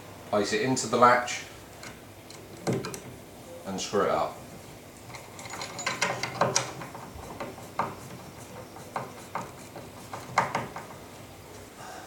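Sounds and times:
screw clicks and scrapes: 0:05.1 - 0:11.0.

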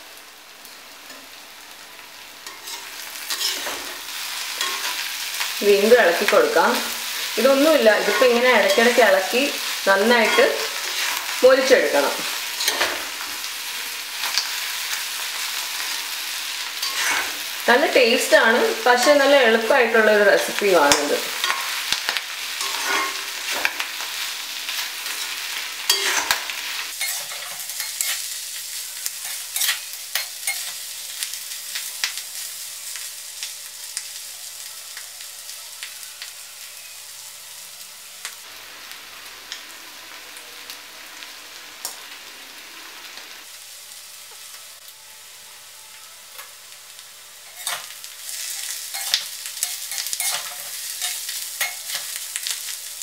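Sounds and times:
clam meat sizzling in oil: 0:00.0 - 0:53.0
metal spatula scraping pan: 0:02.4 - 0:13.4, 0:14.2 - 0:17.6, 0:20.8 - 0:28.3, 0:29.1 - 0:30.8, 0:47.5 - 0:52.2.

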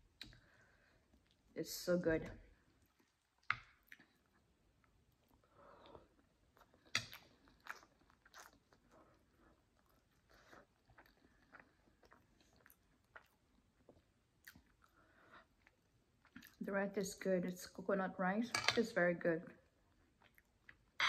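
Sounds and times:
person chewing food: 0:02.6 - 0:16.6, 0:19.7 - 0:21.0.

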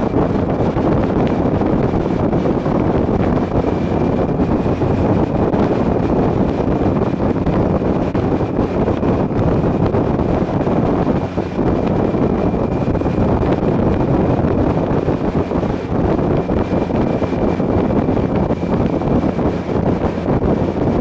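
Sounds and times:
motorcycle engine: 0:00.0 - 0:21.0
wind rushing over microphone: 0:00.0 - 0:21.0.

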